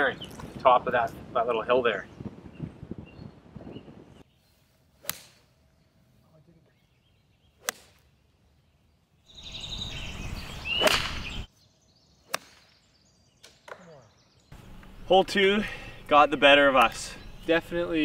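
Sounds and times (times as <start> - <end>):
wind noise: 0.0 - 4.3
golf club striking ball: 5.0 - 5.4.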